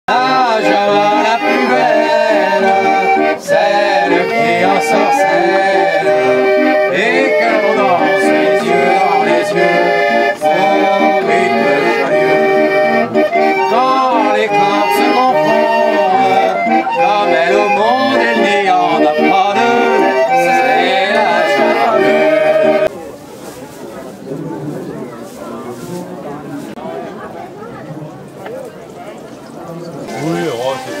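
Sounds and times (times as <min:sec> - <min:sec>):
man singing: 0:00.1 - 0:12.6, 0:13.6 - 0:22.8
street organ playing: 0:00.1 - 0:23.0, 0:28.8 - 0:31.0.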